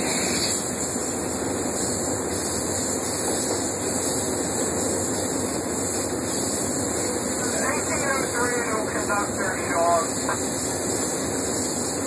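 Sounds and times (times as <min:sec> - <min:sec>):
locomotive running roar: 0:00.0 - 0:12.0.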